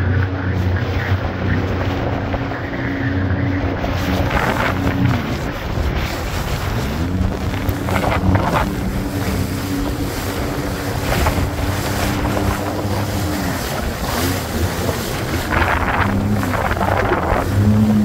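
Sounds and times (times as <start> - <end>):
jet ski engine running: 0.0 - 18.0
splashing water: 0.0 - 18.0
wind buffeting microphone: 0.0 - 18.0.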